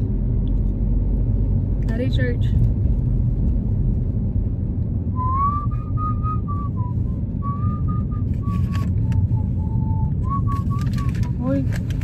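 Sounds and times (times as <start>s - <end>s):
car cabin rumble: 0.0s - 12.0s
man whistling a tune: 5.2s - 11.1s.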